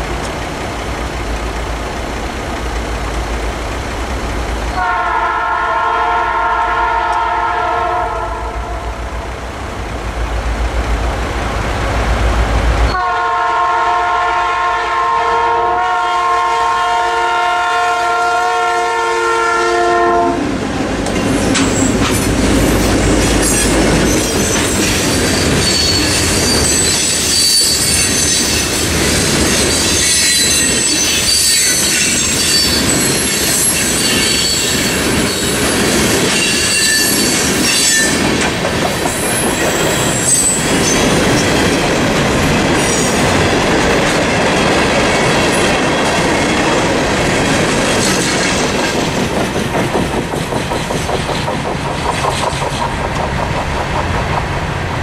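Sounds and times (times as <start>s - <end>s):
diesel locomotive deep rumble: 0.0s - 55.0s
locomotive horn chord: 4.8s - 9.0s, 12.9s - 20.5s
wheels clacking over rail joints: 20.7s - 55.0s
high-pitched wheel squeal: 23.4s - 28.8s, 29.6s - 38.3s, 39.1s - 41.6s.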